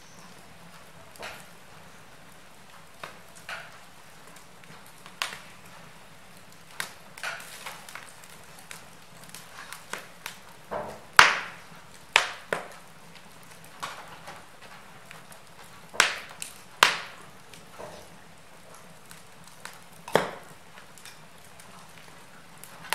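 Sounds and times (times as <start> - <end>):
fire crackling and popping: 0.0 - 22.9.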